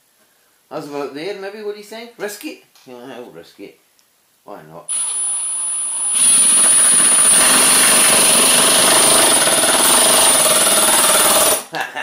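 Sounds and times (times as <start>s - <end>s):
impact driver hammering rattle: 4.9s - 11.6s
impact driver motor whine: 4.9s - 11.6s.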